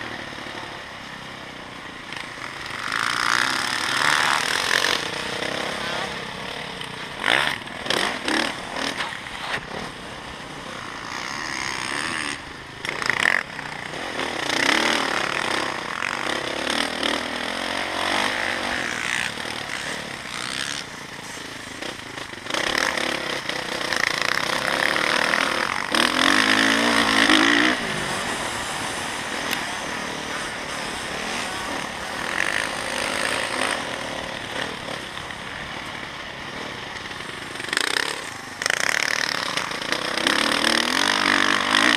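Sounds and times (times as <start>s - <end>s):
dirt bike engine revving: 0.0s - 41.9s.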